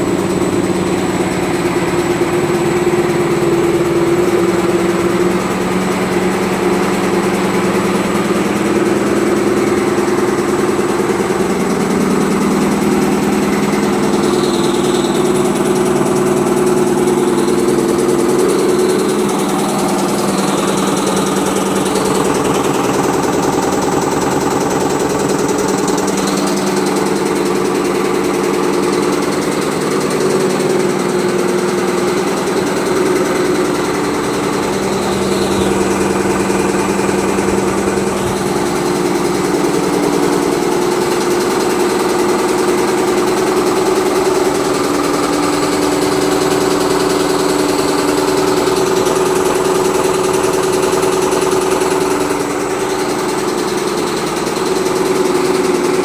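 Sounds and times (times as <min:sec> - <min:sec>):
motor hum: 0:00.0 - 0:43.5
sieve mechanical clatter: 0:00.0 - 0:56.0.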